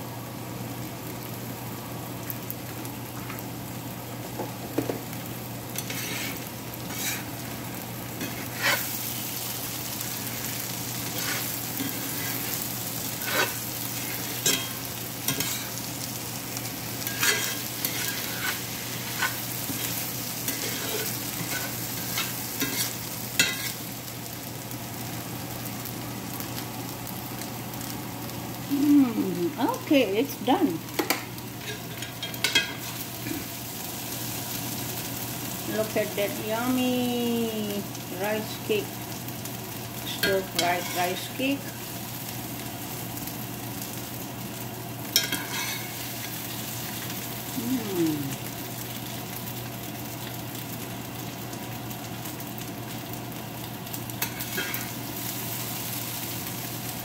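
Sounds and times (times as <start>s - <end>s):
food sizzling in skillet: 0.0s - 57.0s
metal spatula scraping pan: 5.8s - 7.3s, 8.2s - 8.9s, 13.2s - 15.7s, 17.0s - 19.9s, 20.5s - 23.8s.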